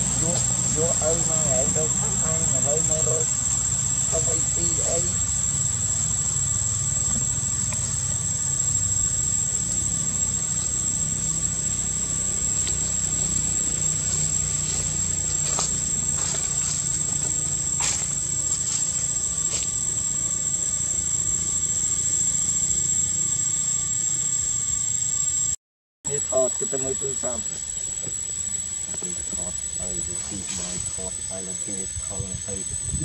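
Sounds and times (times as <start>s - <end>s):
insects droning: 0.0s - 33.0s
low rumble: 26.1s - 33.0s.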